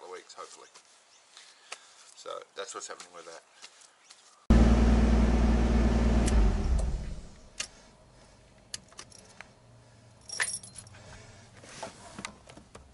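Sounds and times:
car engine running: 0:04.5 - 0:07.5
keys jingling: 0:08.9 - 0:09.4, 0:10.2 - 0:11.0.

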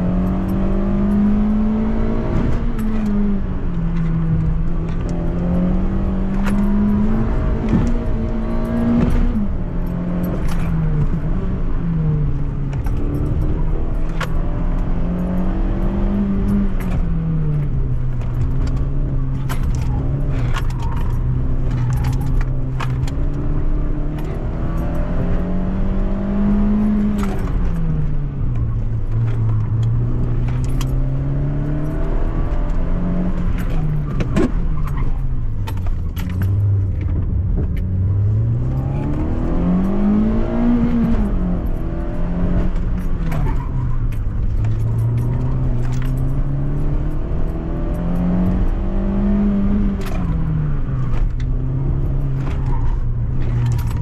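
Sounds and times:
car engine accelerating: 0:00.0 - 0:54.0
clicks and rattles: 0:12.4 - 0:25.5, 0:26.6 - 0:48.8, 0:49.9 - 0:54.0.

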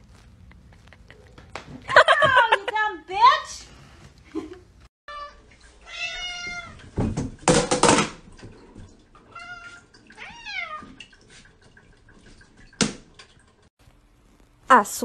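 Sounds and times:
cats meowing: 0:05.1 - 0:06.9.

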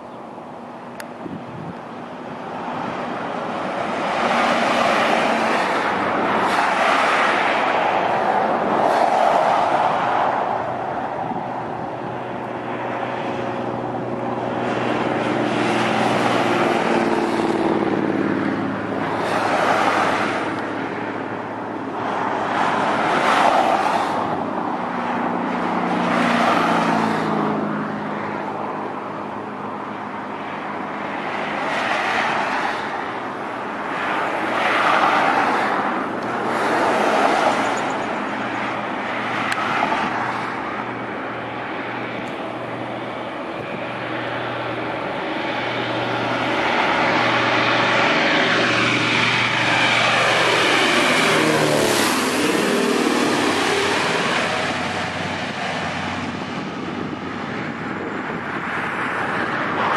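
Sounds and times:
propeller airplane engines droning: 0:00.0 - 0:59.9.

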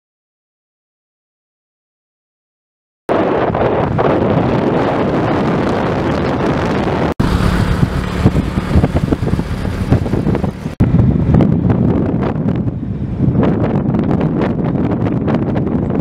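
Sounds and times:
wind blasting microphone: 0:03.1 - 0:16.0
road noise: 0:03.2 - 0:16.0
motorcycle engine: 0:03.4 - 0:13.1.

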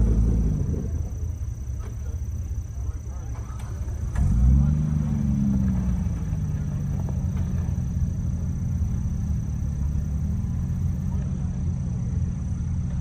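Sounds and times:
engine running at low revs: 0:00.0 - 0:13.0.

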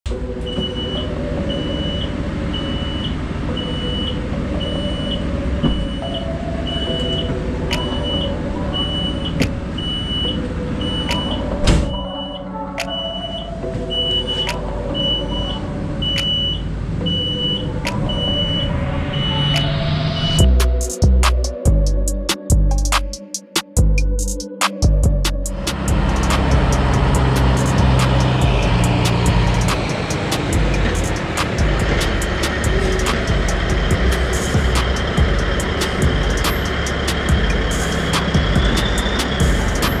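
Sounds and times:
truck engine running: 0:00.0 - 0:12.0, 0:13.2 - 0:23.1, 0:23.8 - 0:40.0.

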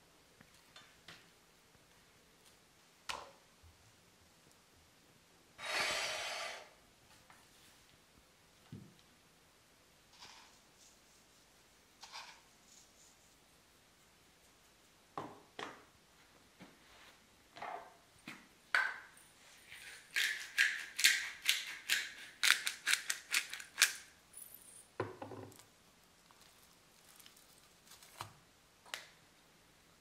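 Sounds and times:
pepper mill grinding: 0:19.7 - 0:24.8
meat being handled: 0:26.2 - 0:28.4.

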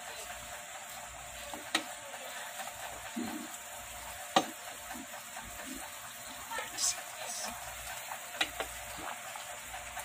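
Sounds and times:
broth simmering in pot: 0:00.0 - 0:10.0
spatula knocking against pot: 0:04.3 - 0:04.6.

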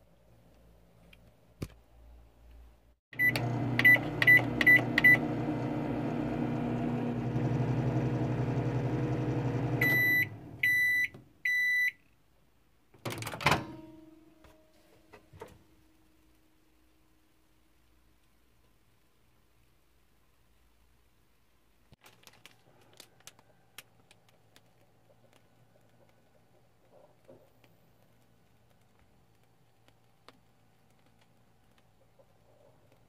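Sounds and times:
microwave keypad beeps: 0:03.2 - 0:05.3, 0:09.8 - 0:12.0
microwave oven humming: 0:03.2 - 0:11.0
microwave door clunk: 0:13.1 - 0:14.0.

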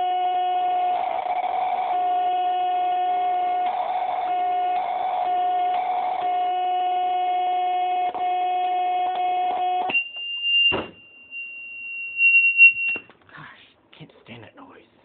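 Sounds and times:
buzzing electronic drone: 0:00.0 - 0:09.9
high steady beep tone: 0:09.9 - 0:13.0.

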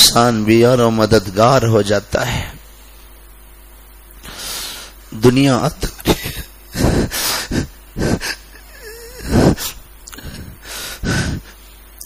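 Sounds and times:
man sobbing: 0:05.8 - 0:11.6
man whimpering: 0:06.1 - 0:09.8.

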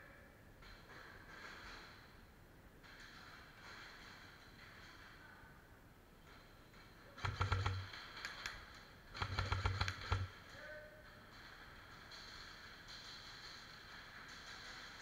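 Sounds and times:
airsoft rifle automatic bursts: 0:07.2 - 0:10.3.

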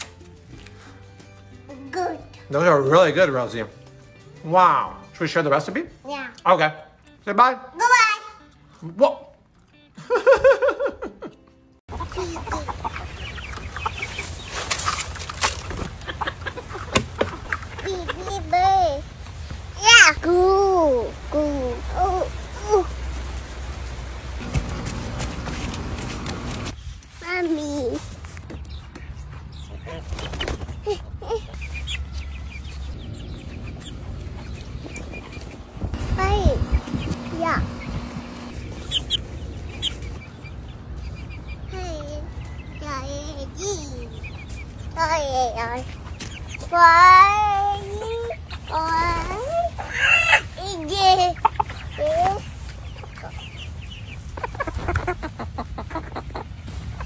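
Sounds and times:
chicken clucking: 0:11.3 - 0:18.5, 0:29.6 - 0:35.9, 0:36.6 - 0:43.4, 0:45.6 - 0:57.0.

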